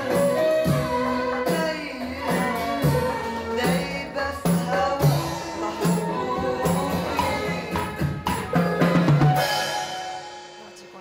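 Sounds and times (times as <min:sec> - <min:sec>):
woman singing: 0:00.0 - 0:09.5
bass notes: 0:00.0 - 0:10.8
keyboards: 0:00.0 - 0:11.0.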